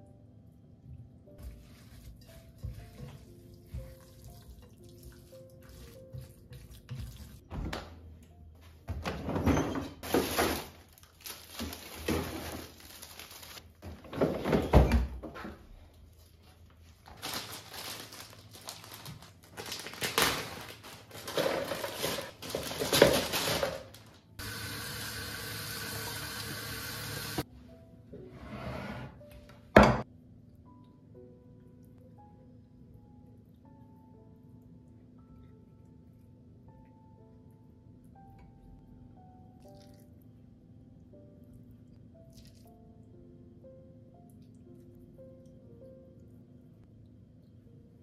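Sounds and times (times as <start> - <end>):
freezer door and drawer opening: 8.9 - 10.8, 11.6 - 12.9, 13.8 - 15.6, 20.0 - 23.9.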